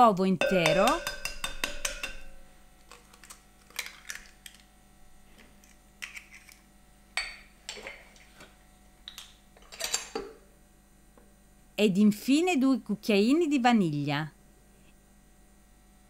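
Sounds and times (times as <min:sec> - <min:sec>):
egg cracking on bowl: 0:00.6 - 0:04.7.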